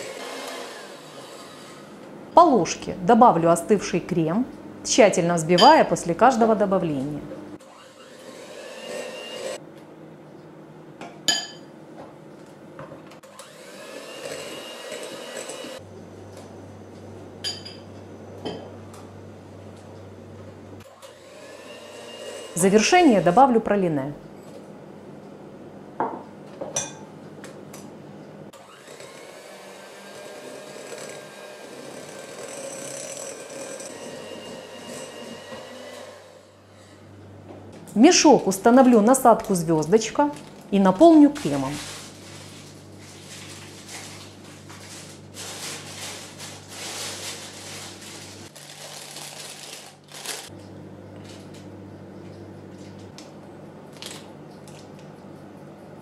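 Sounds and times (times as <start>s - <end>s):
electric hand mixer whirring: 0.0s - 2.0s, 7.6s - 9.6s, 13.2s - 15.8s, 20.9s - 23.3s, 28.5s - 36.6s
spoon clinking against glass: 11.3s - 11.7s.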